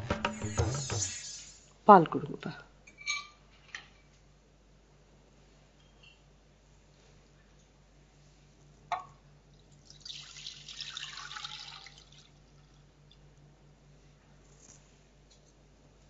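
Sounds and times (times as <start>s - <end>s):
sharp knock: 0.0s - 1.5s
milk pouring and splashing: 9.6s - 13.2s.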